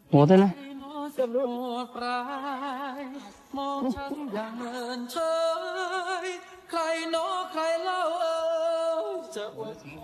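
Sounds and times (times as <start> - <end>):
person singing with vibrato: 0.4 - 10.0.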